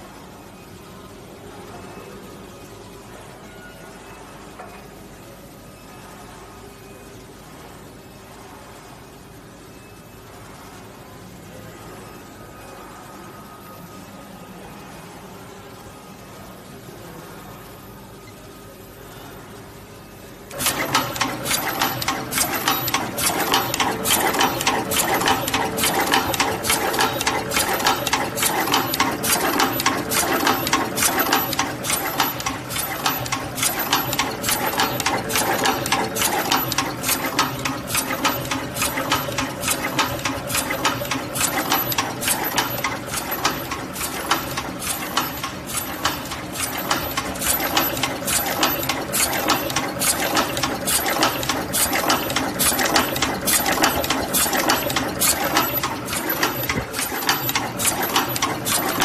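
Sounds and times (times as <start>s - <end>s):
crimping machine clicking: 20.5s - 59.0s.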